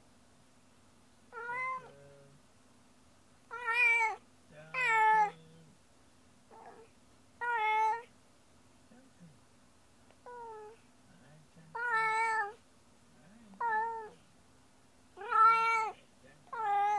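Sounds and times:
cat meowing: 1.3 - 2.0, 3.5 - 5.5, 6.5 - 8.1, 10.2 - 10.8, 11.7 - 12.6, 13.6 - 14.2, 15.2 - 16.9.

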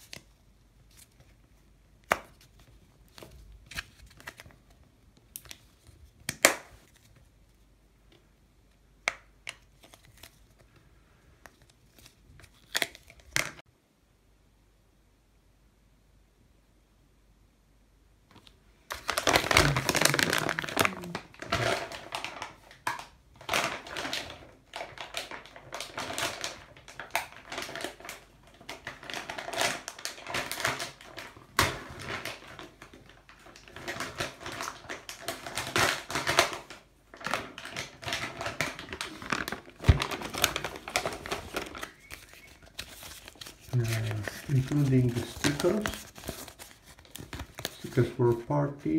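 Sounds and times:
plastic packaging crinkling: 11.4 - 13.6, 18.3 - 48.9.

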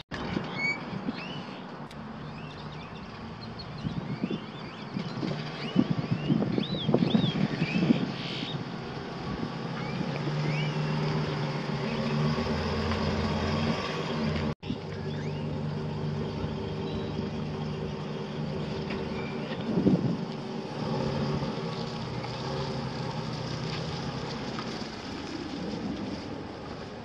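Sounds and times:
birds chirping: 0.2 - 20.0
engine idling: 14.2 - 25.4.

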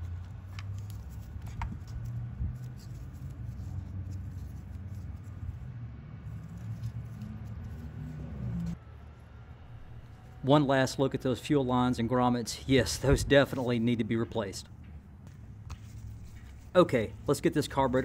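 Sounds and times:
steady low hum: 4.9 - 17.4.

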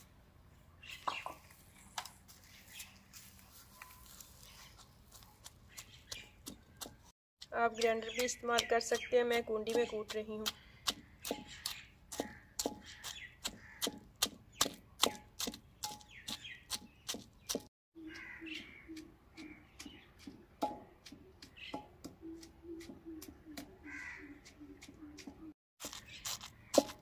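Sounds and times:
pestle pounding in mortar: 7.7 - 17.7, 19.4 - 25.4, 26.7 - 27.0.

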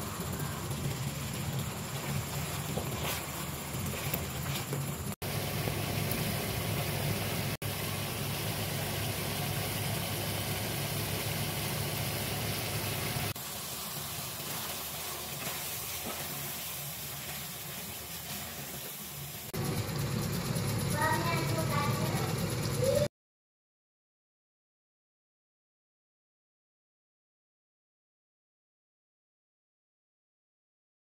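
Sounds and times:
low hum: 0.0 - 13.4
chicken sizzling in a pan: 5.2 - 19.5.

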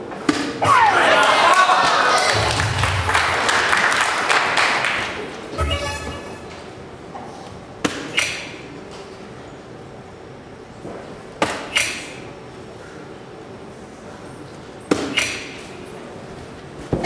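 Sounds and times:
electronic hit sound: 5.6 - 6.5
short electronic jingle: 5.6 - 6.5.

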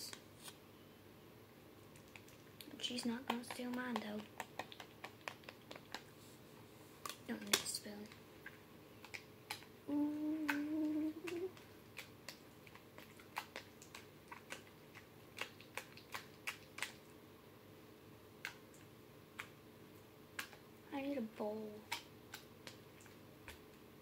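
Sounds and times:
person humming a note: 9.9 - 11.5.

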